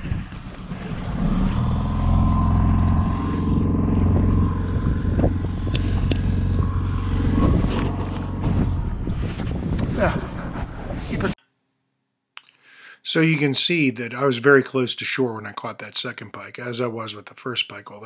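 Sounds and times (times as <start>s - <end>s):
outboard motor running: 0.0s - 10.5s.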